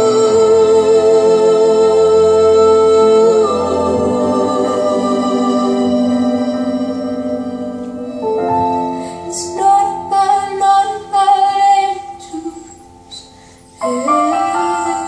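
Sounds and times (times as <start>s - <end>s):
held keyboard chord: 0.0s - 15.0s
woman singing slow melody: 9.1s - 15.0s.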